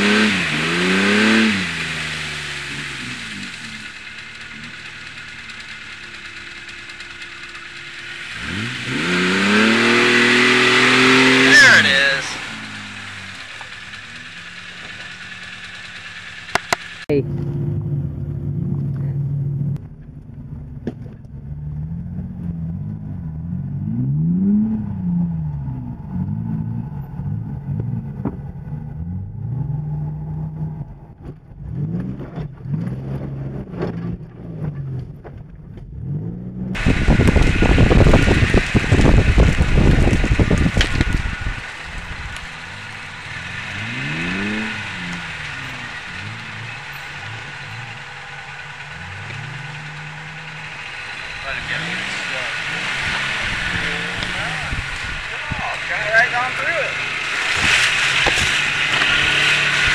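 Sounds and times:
loud rough noise: 0.0 - 17.5, 36.7 - 59.9
suv engine revving: 0.0 - 59.9.

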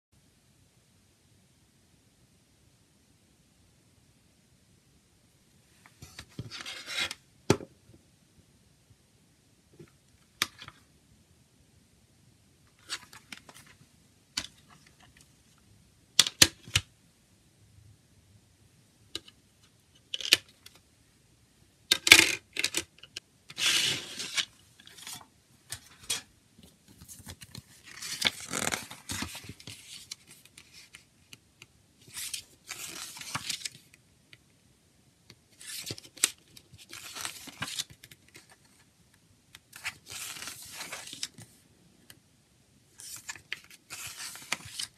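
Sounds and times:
paper rustling: 23.5 - 31.1, 32.0 - 33.9, 35.6 - 38.8, 39.7 - 41.6, 43.0 - 44.9.

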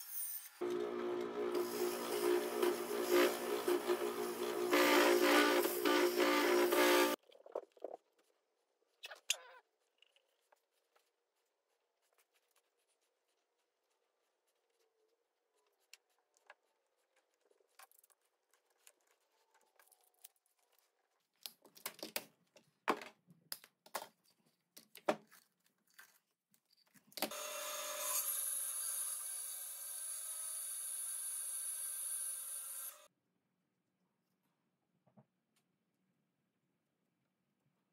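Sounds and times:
bandsaw whirring: 0.6 - 7.2.

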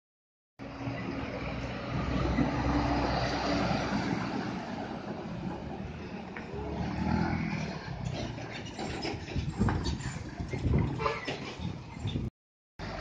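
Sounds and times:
diesel truck driving past: 0.6 - 11.7, 12.8 - 13.0.

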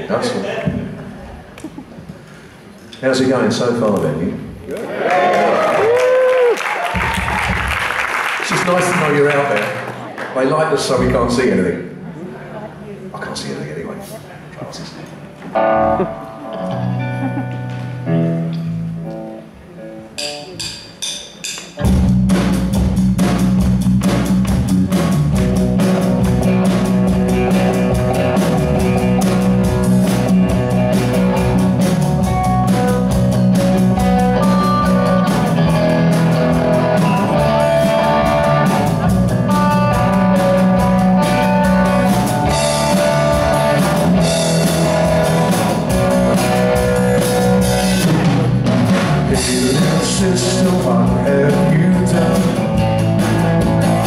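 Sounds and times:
live rock band playing: 15.1 - 54.0.

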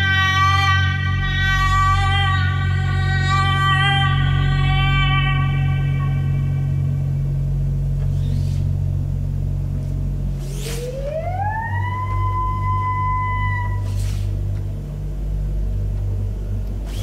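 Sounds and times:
steady low drone: 0.0 - 17.0
tone gliding up: 0.0 - 17.0
airy swishes: 10.3 - 11.2.

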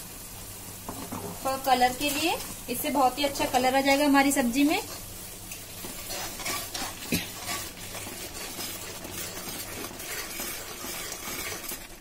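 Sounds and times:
food sizzling: 0.0 - 12.0
spoon scraping a pan: 4.7 - 12.0.

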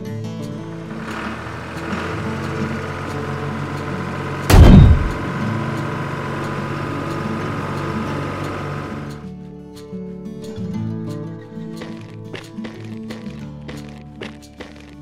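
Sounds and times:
music: 0.0 - 15.0
cartoon tractor engine running: 0.4 - 9.2, 11.8 - 15.0
loud heavy thump: 4.5 - 5.3.

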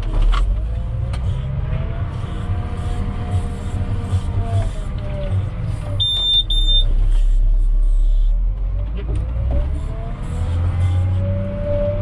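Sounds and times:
diesel engine running: 0.0 - 12.0
short high-pitched electronic beeps: 6.0 - 6.9.

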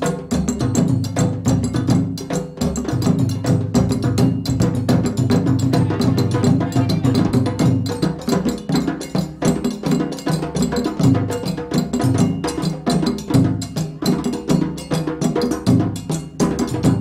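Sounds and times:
rapid percussive strikes: 0.0 - 17.0
live band music: 5.7 - 7.6.

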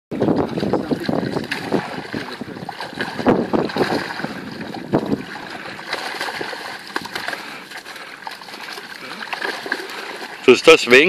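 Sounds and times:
wind buffeting microphone: 0.1 - 7.3
water splashing off net: 0.4 - 11.0.

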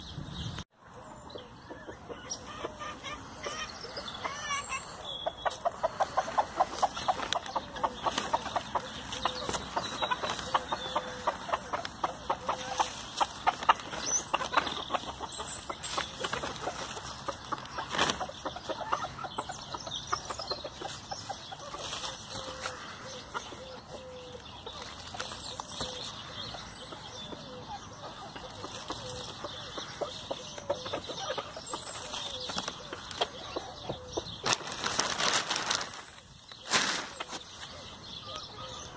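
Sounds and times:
chickens clucking softly: 1.3 - 34.6
chickens tearing at grass: 5.6 - 19.0, 20.8 - 22.8, 34.4 - 37.5.

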